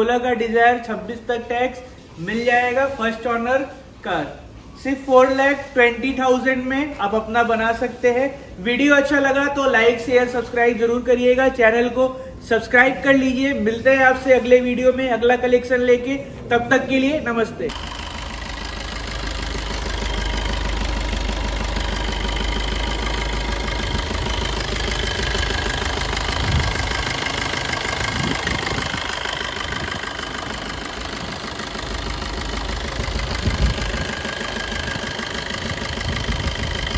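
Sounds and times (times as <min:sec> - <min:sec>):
diesel engine idling: 0:17.7 - 0:36.9.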